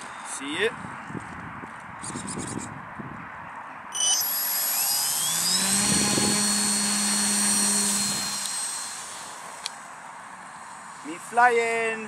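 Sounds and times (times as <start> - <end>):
electric motor and propeller whine: 3.9 - 9.7.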